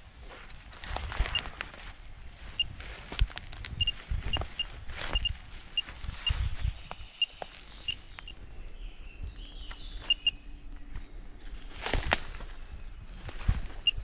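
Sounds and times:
footsteps in dry leaves: 0:00.0 - 0:08.4
short high beeps: 0:03.8 - 0:05.9, 0:10.1 - 0:10.3.

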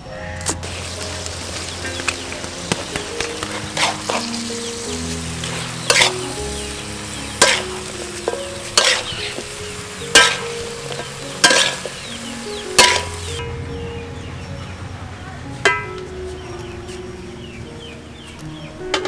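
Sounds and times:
peppers sizzling in a wok: 0:00.5 - 0:13.4
metal spatula scraping: 0:03.5 - 0:04.3, 0:05.4 - 0:06.3, 0:07.4 - 0:09.4, 0:10.1 - 0:12.0.

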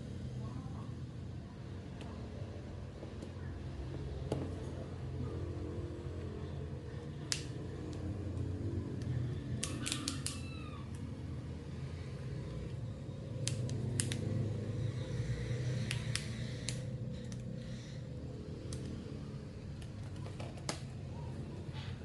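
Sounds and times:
plastic clips clicking: 0:09.6 - 0:10.4.

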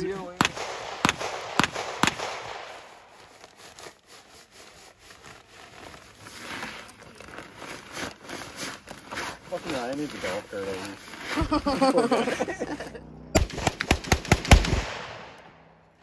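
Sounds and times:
gunshots: 0:00.3 - 0:03.1, 0:13.4 - 0:15.7
plastic bag rustling: 0:03.1 - 0:12.6.

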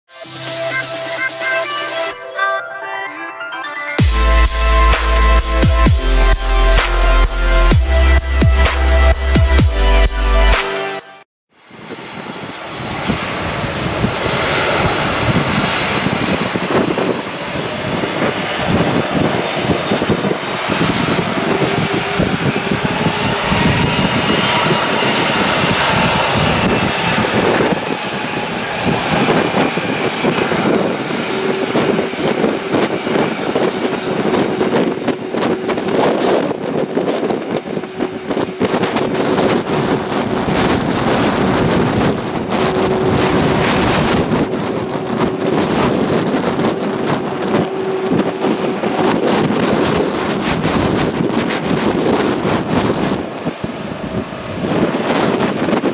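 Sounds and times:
jet engines running: 0:00.1 - 0:02.4, 0:04.0 - 0:55.9
wind buffeting microphone: 0:11.7 - 0:55.9.

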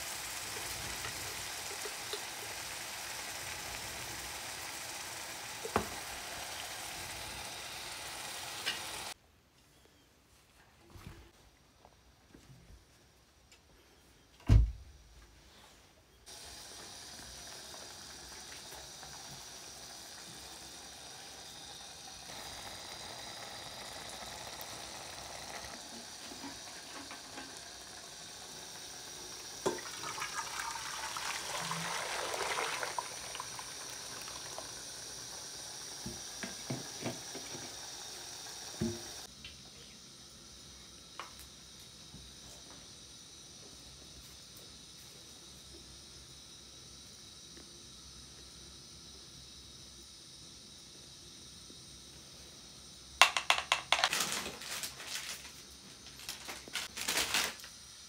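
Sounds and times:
hot water pouring into metal pot: 0:00.0 - 0:09.2, 0:16.3 - 0:39.3.

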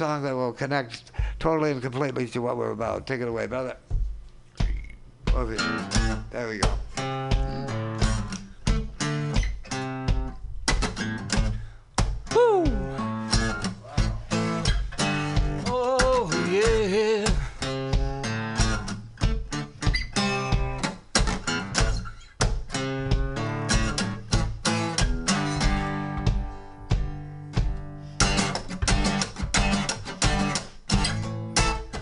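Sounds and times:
acoustic guitar strumming: 0:04.6 - 0:32.0
person singing wordless notes: 0:12.3 - 0:13.1, 0:15.6 - 0:17.5.

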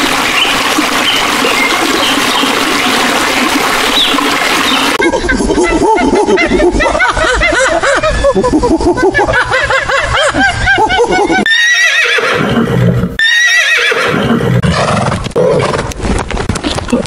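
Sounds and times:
horse whinnying: 0:11.4 - 0:15.9.

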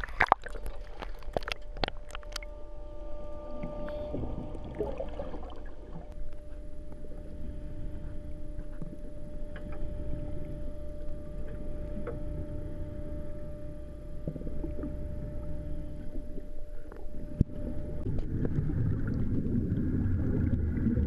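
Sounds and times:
ship machinery hum: 0:00.0 - 0:21.0
underwater low rumble: 0:00.0 - 0:21.0
diver exhaust bubbles: 0:18.2 - 0:21.0.

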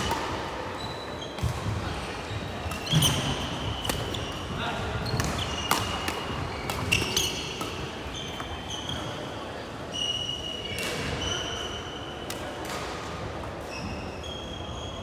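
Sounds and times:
sneakers squeaking on wooden floor: 0:00.7 - 0:09.2, 0:13.7 - 0:15.0
rackets striking shuttlecock: 0:02.6 - 0:04.4, 0:05.1 - 0:08.5.

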